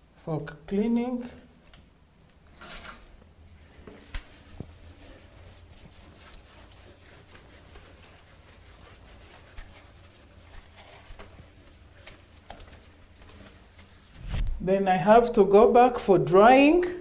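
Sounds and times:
low steady hum: 0.0s - 17.0s
scouring pad scrubbing tiles: 3.7s - 14.2s.

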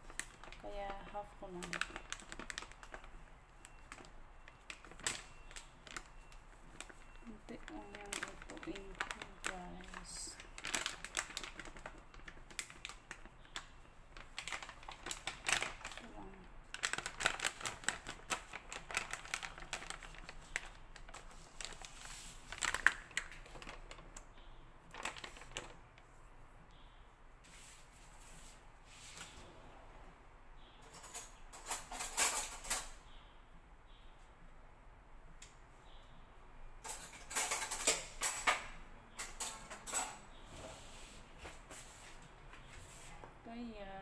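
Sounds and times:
plastic packet crinkling: 0.0s - 24.3s, 24.9s - 25.8s
metal utensils clattering: 30.9s - 32.9s, 36.8s - 38.6s.

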